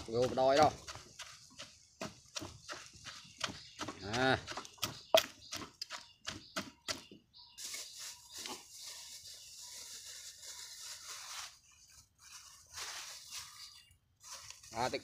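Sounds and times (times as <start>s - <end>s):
pestle pounding in wooden mortar: 0.0s - 7.2s
scraping rustle: 7.6s - 15.0s.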